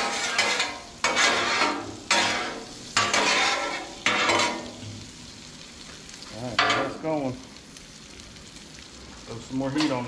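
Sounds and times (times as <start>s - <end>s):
metal spatula scraping griddle: 0.0s - 4.8s
potatoes sizzling on griddle: 0.0s - 10.0s.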